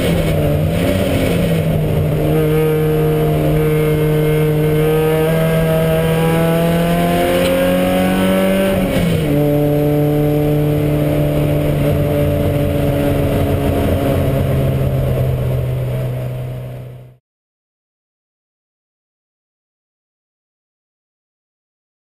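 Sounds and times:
race car engine at full throttle: 0.0 - 17.2.

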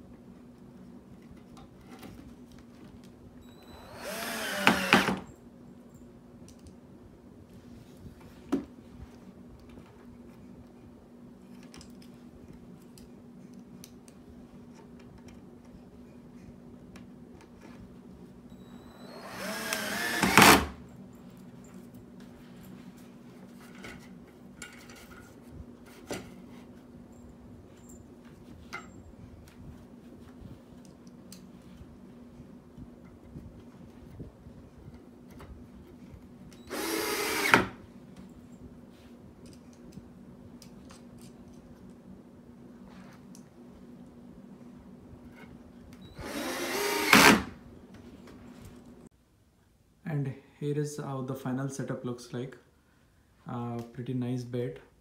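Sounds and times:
steady low hum: 0.0 - 55.0
cordless drill driving screw: 3.6 - 5.3, 18.7 - 20.8, 36.7 - 37.8, 46.2 - 47.5.

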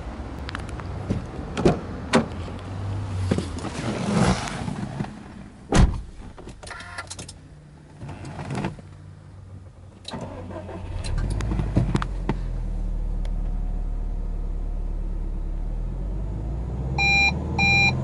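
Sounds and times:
car door shutting: 5.7 - 7.0.

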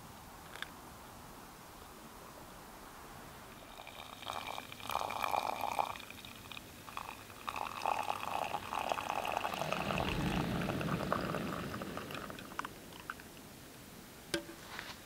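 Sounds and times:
coffee pouring trickle: 3.6 - 13.3.

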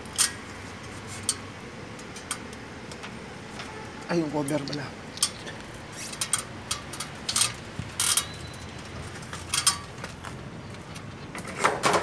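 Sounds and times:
hand tools clicking and rattling: 4.4 - 10.3.

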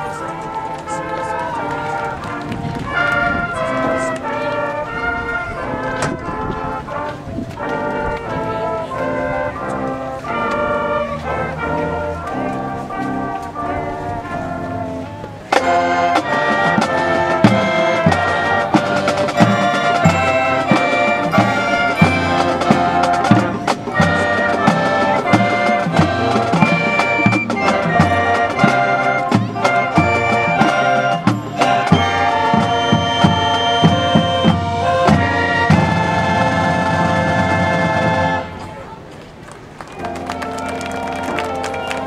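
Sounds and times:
sustained brass chords: 0.0 - 39.0, 39.9 - 42.0
marching band playing: 0.0 - 42.0
drums beating: 14.7 - 38.6.

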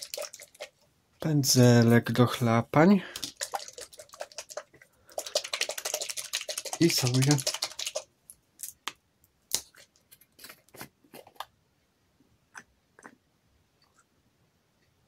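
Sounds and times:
brush clicking in paint pot: 3.2 - 8.1.

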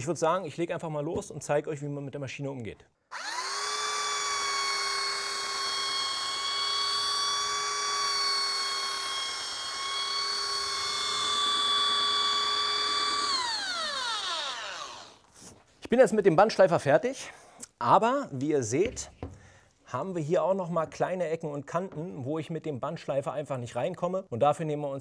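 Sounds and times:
belt sander whining: 3.1 - 15.4.

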